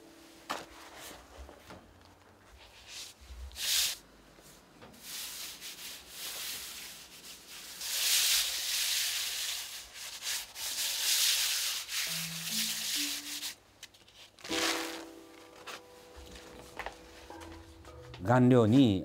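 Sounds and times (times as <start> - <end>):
palms rubbing paper: 2.5 - 4.0, 5.0 - 17.7
paper swish: 7.6 - 13.6.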